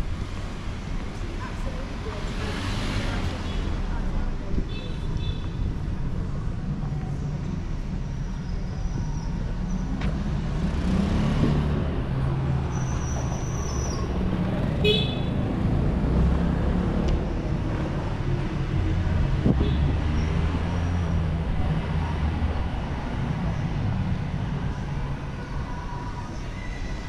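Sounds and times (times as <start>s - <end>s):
vehicle engines rumbling: 0.0s - 27.0s
car horn toot: 14.8s - 15.3s.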